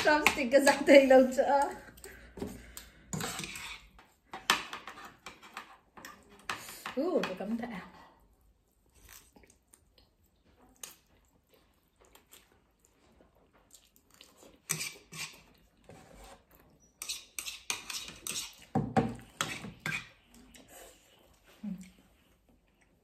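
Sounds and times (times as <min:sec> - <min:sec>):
slurping and chewing noodles: 0:08.4 - 0:23.0.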